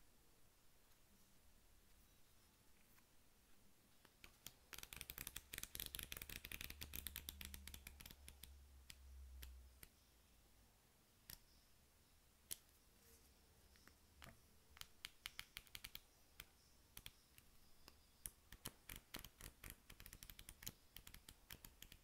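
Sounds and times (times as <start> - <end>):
flip book pages fluttering: 4.7 - 8.1.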